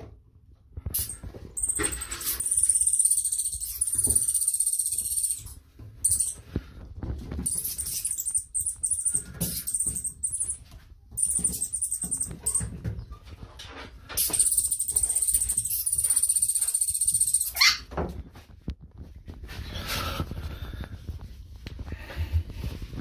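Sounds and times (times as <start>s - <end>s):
mole squeaking: 1.0s - 6.4s, 7.4s - 10.6s, 11.2s - 12.7s, 14.2s - 17.8s.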